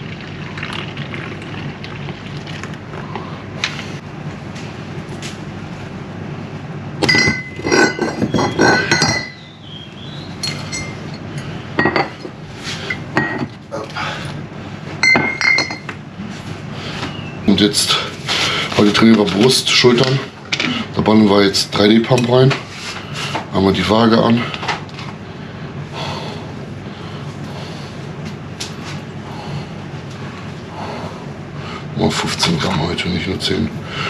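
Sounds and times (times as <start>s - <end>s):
steady background noise: 0.0s - 34.0s
dishes and cutlery clinking: 7.0s - 9.4s, 10.4s - 12.3s, 15.0s - 15.9s.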